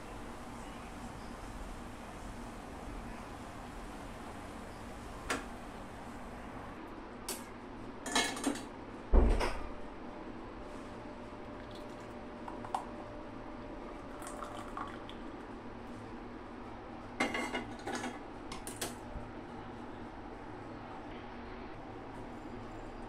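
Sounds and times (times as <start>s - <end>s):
liquid pouring into tumbler: 11.6s - 12.9s, 13.9s - 15.4s.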